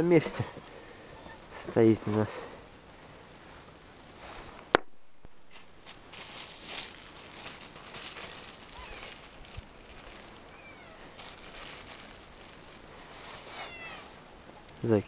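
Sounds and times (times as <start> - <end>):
hands rustling small parts: 5.5 - 13.8.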